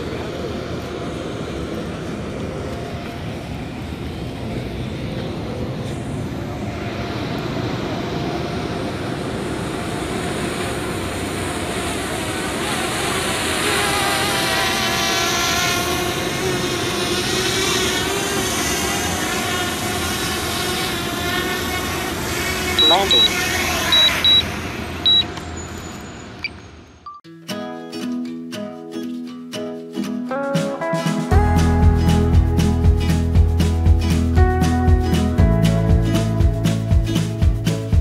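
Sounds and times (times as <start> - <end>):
drone propellers buzzing: 0.0 - 25.4.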